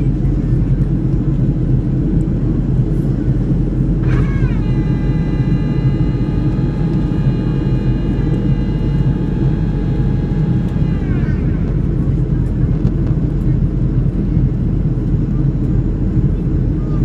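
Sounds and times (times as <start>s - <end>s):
aircraft engine rumble in cabin: 0.0s - 17.0s
whine sliding down in pitch: 4.0s - 12.0s.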